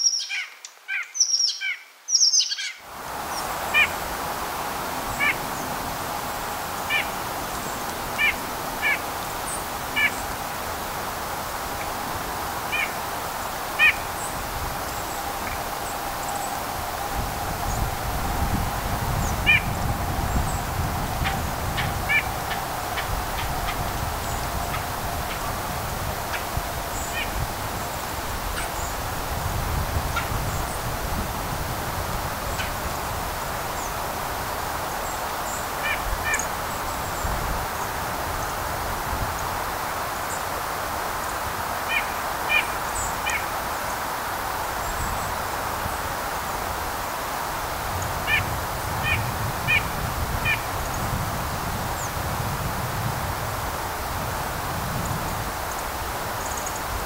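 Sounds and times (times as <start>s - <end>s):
faint high bird chirps: 0.0s - 2.8s
nuthatch nasal calls: 0.0s - 3.9s, 8.2s - 10.2s, 12.7s - 13.0s, 13.8s - 14.0s, 19.4s - 19.7s, 21.2s - 25.4s, 27.0s - 27.4s
forest ambience hiss: 0.0s - 57.0s.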